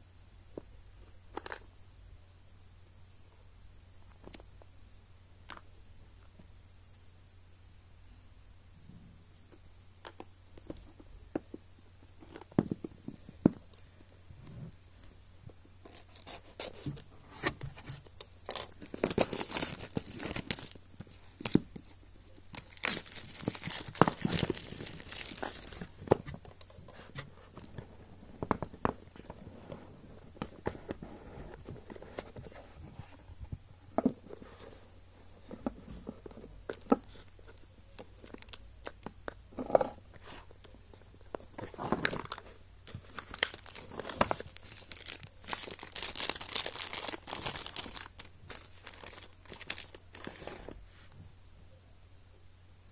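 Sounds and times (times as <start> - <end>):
plastic wrap tearing and crumpling: 18.3 - 26.0, 42.0 - 50.4.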